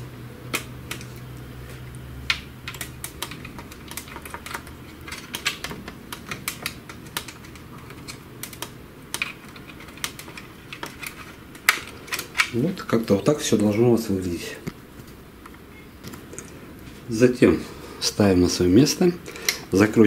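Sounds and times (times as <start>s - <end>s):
plastic parts clicking and tapping: 2.3s - 12.6s.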